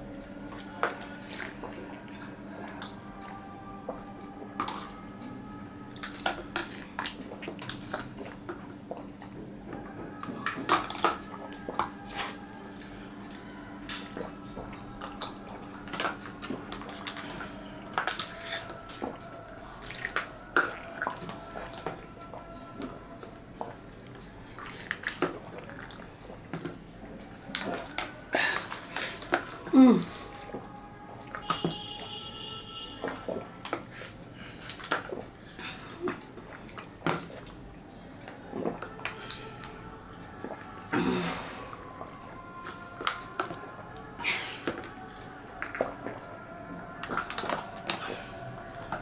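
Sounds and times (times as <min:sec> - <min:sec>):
plastic cups clicking and tapping: 0:03.9 - 0:05.1, 0:05.9 - 0:23.0, 0:23.6 - 0:29.7, 0:33.0 - 0:35.4, 0:44.6 - 0:46.2, 0:47.0 - 0:48.2
people sipping and gulping: 0:03.9 - 0:30.7, 0:33.0 - 0:49.0
plastic cups clicking on table: 0:47.0 - 0:48.2.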